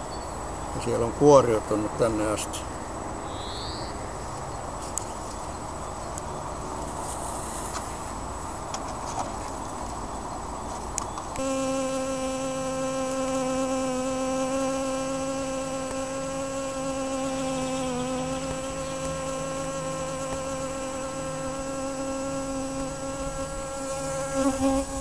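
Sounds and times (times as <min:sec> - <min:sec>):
honeybees humming: 0:11.2 - 0:25.0
single bee buzzing in flight: 0:11.4 - 0:25.0.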